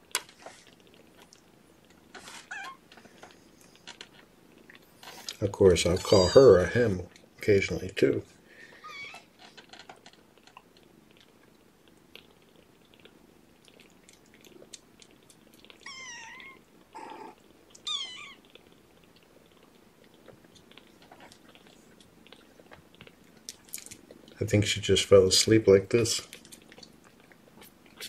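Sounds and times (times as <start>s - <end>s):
kitten mewing: 5.9s - 6.7s, 15.8s - 18.5s.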